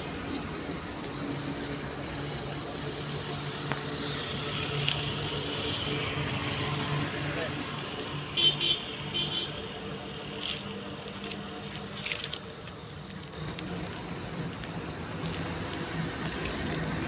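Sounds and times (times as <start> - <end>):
low engine hum: 9.7 - 17.0
leaves rustling and crackling: 10.3 - 17.0.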